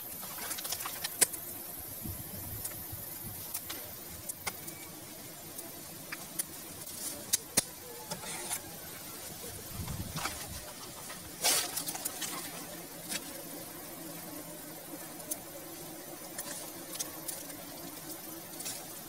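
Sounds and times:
knife scraping soil: 6.4 - 8.8, 10.1 - 13.4.

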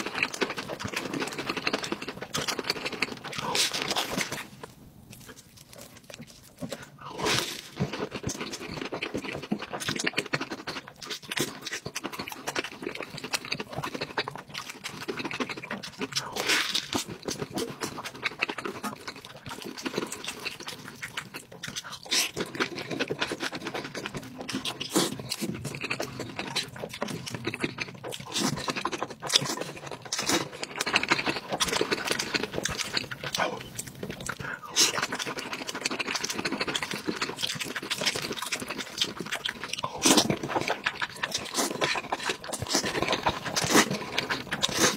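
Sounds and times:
person chewing food: 0.0 - 44.9
slurping noodles: 21.6 - 44.9.

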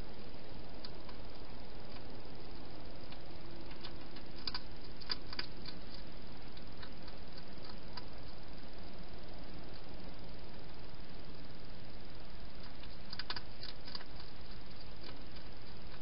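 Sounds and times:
steady hiss: 0.0 - 16.0
hedgehog chewing clicks: 3.1 - 8.4, 12.6 - 16.0.

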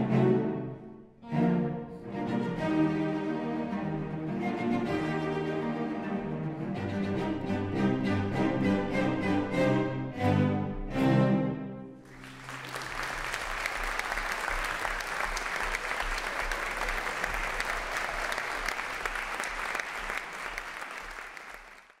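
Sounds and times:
audience applauding: 12.0 - 22.0.

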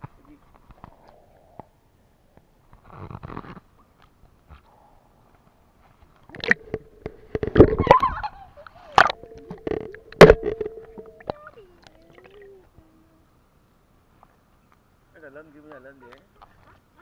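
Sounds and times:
water sloshing and splashing: 6.1 - 12.8
thin steady tone: 6.4 - 13.5.

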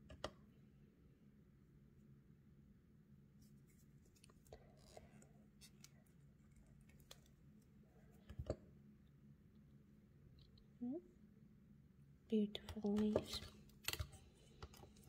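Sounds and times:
faint low hum: 0.0 - 15.0
fingers handling clay in a mold: 12.6 - 15.0.

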